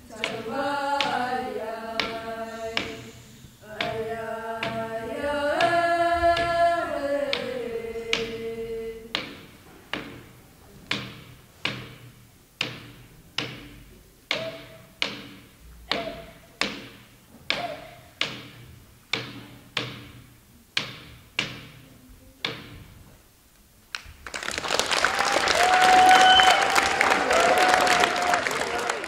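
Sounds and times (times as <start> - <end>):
frame drum beating: 0.0 - 23.0
applause: 23.9 - 29.0.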